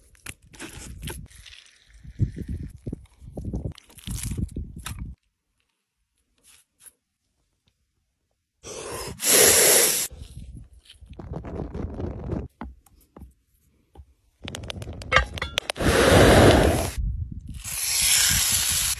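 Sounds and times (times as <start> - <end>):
match striking and hissing: 9.2 - 10.1, 17.6 - 18.9.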